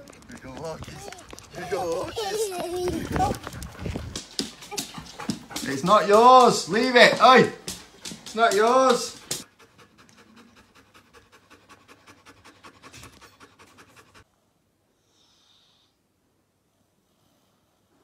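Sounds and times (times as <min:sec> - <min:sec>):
dog panting: 0:00.0 - 0:14.3.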